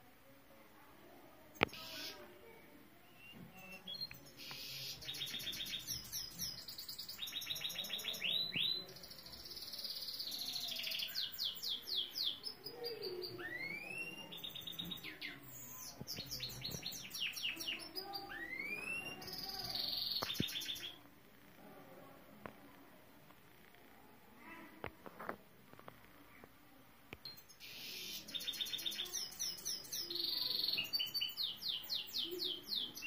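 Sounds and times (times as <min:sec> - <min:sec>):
canary singing trills: 0:01.6 - 0:02.2, 0:03.1 - 0:21.0, 0:27.2 - 0:33.0.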